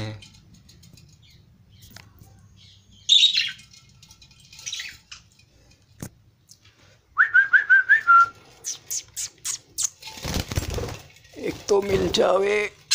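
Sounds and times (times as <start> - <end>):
budgerigars chirping: 3.0 - 3.6.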